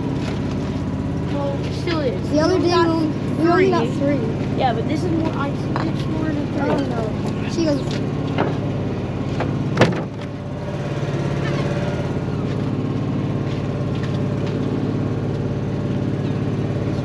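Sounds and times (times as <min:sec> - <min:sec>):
boat engine idling: 0:00.0 - 0:17.0.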